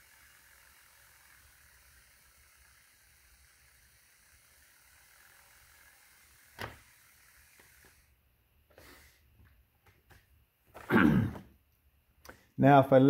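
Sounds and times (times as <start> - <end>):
small motor whirring: 0.0 - 10.0.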